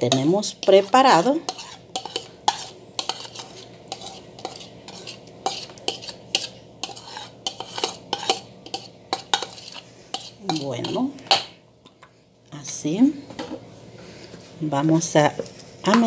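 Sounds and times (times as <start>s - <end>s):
metal spoon scraping a bowl: 0.1s - 11.1s.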